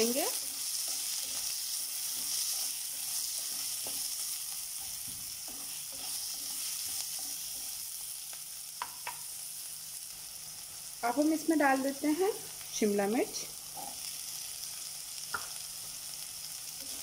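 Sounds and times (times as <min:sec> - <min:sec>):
spatula scraping pan: 0:00.0 - 0:08.0
onions sizzling in oil: 0:00.0 - 0:17.0.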